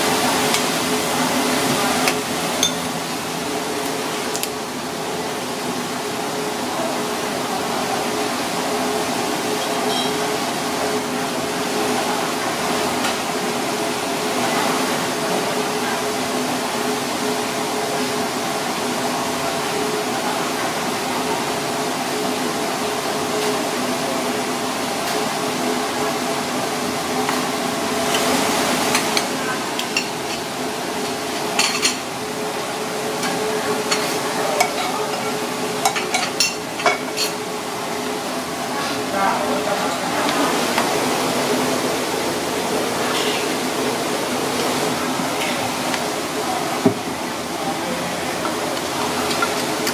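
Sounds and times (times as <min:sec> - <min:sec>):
chopsticks and dishes clinking: 0:02.1 - 0:02.9.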